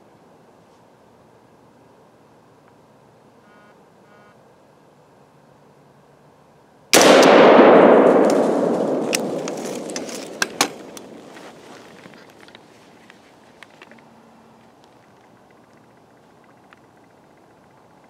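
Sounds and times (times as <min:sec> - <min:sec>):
rifle shot echoing: 0:07.0 - 0:11.4.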